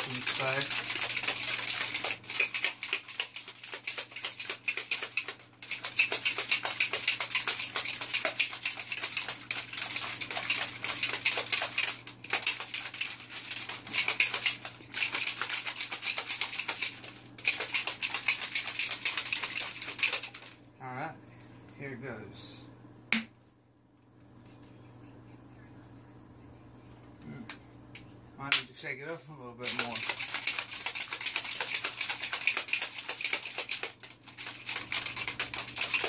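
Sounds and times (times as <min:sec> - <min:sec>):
shaker bottle rattling and sloshing: 0:00.0 - 0:20.6, 0:29.6 - 0:36.0.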